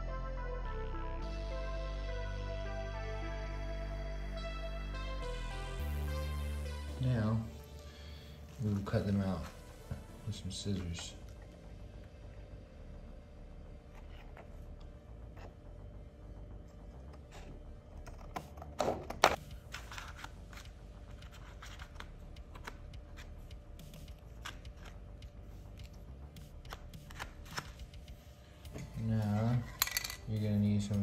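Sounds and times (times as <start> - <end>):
plastic discs crackling: 18.1 - 23.3.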